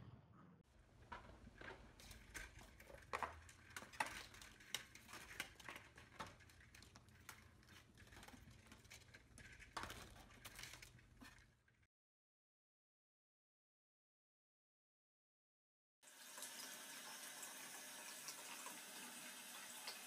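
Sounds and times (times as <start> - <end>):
window blind slats clacking: 0.8 - 11.6.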